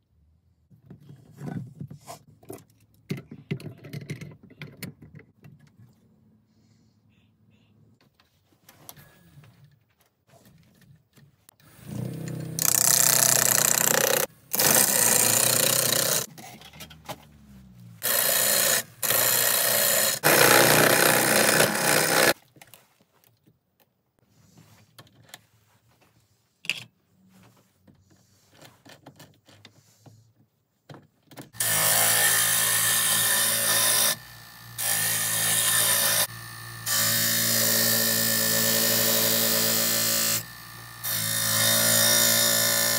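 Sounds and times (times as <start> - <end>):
lathe motor hum: 31.6 - 42.9.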